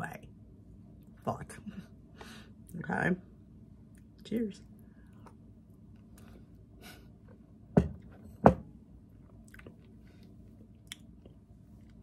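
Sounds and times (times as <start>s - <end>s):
person chewing: 9.2s - 12.0s.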